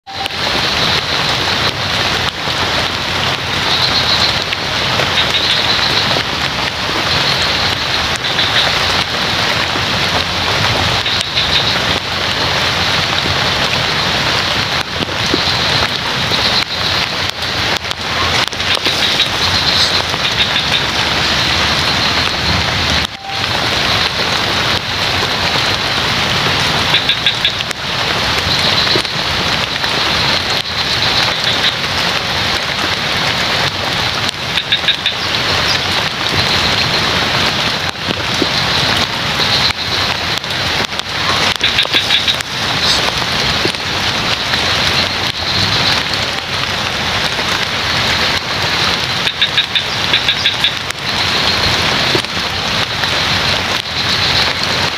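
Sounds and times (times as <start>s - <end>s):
steady rain: 0.0s - 54.9s
frogs calling: 3.5s - 9.2s, 10.9s - 12.3s, 15.2s - 22.4s, 26.8s - 32.0s, 34.5s - 40.5s, 41.3s - 46.2s, 48.2s - 54.9s.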